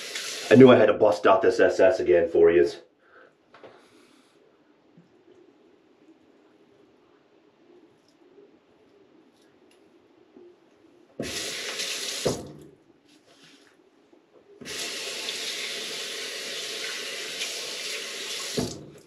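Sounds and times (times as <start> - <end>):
tap running into sink: 11.2 - 12.7, 18.3 - 19.0.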